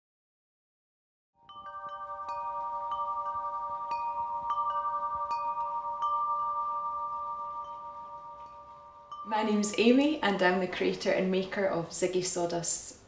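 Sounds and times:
metallic chimes ringing: 1.4 - 10.7.

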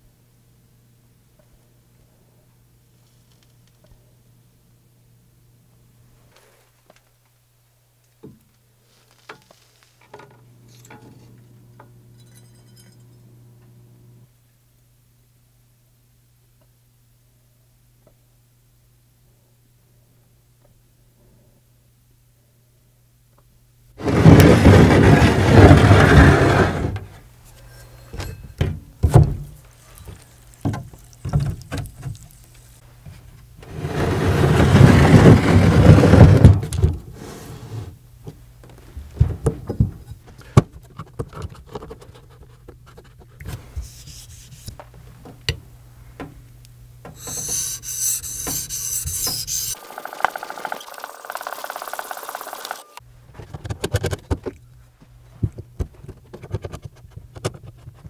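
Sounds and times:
loud rasping rubs: 43.8 - 44.8, 47.2 - 49.8.

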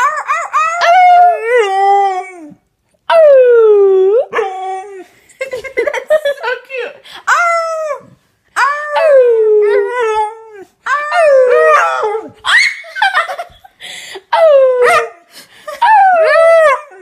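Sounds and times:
dog howling: 7.3 - 12.8.

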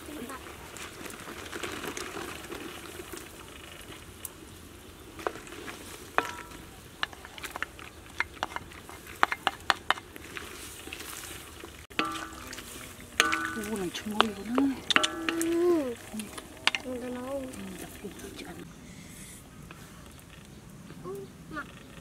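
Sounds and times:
stems dropped into soup: 5.2 - 18.7
wooden spoon clacking on wok: 6.2 - 11.1, 11.9 - 18.4.

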